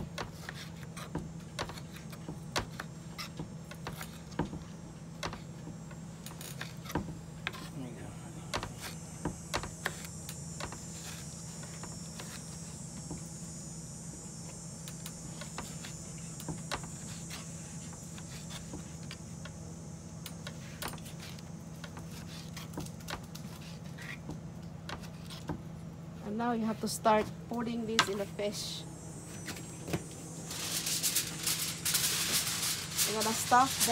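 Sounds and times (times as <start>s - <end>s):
high hiss: 28.4s - 33.9s.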